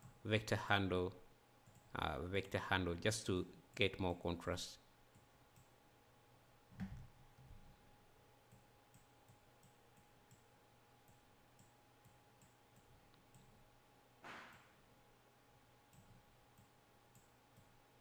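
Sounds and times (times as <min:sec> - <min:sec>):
computer mouse clicks: 0:08.5 - 0:13.5.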